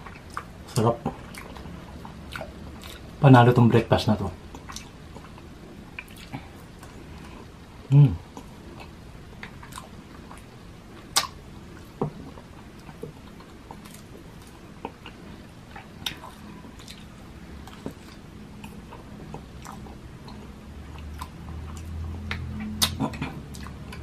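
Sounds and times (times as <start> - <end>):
chewing and mouth sounds: 0.0 - 3.2, 4.5 - 7.5, 8.3 - 24.0.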